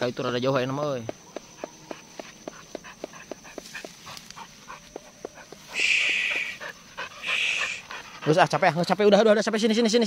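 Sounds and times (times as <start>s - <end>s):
dog panting quickly: 1.6s - 8.8s.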